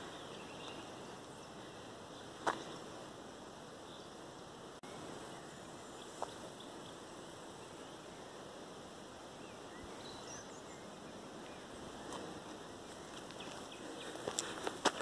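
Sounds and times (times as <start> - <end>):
faint rushing background: 0.0 - 15.0
faint bird chirps: 4.8 - 14.2.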